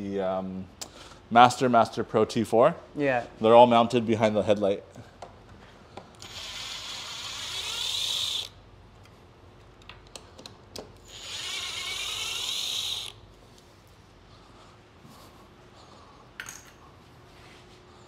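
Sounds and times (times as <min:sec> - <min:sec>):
power screwdriver running: 0:06.2 - 0:08.6, 0:11.0 - 0:13.2.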